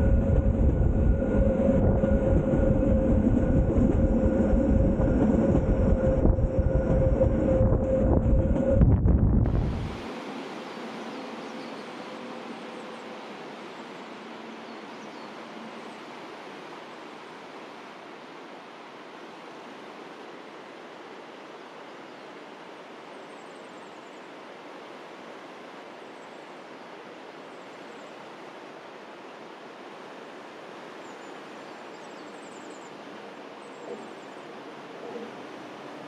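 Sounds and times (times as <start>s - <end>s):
river rushing over rocks: 9.6s - 36.0s.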